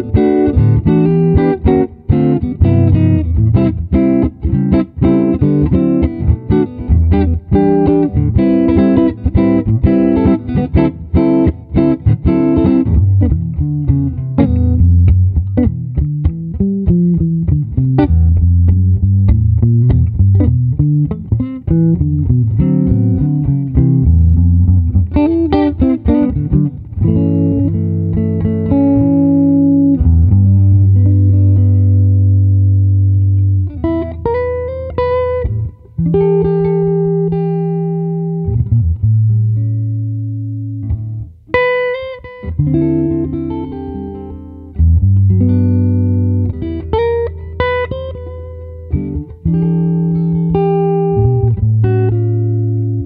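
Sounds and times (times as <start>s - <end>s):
solo guitar playing: 0.0s - 53.0s.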